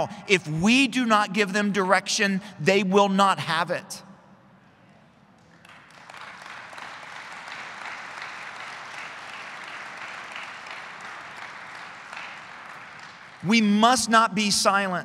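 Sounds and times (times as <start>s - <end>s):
audience applauding: 5.5s - 13.5s.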